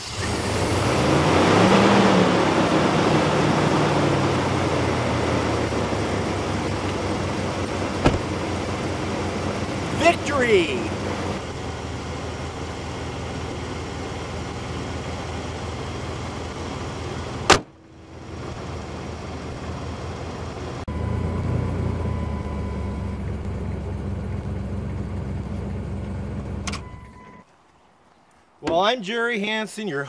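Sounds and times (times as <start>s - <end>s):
car engine idling: 0.0s - 26.8s
car hood slamming: 8.0s - 8.5s, 17.5s - 17.7s.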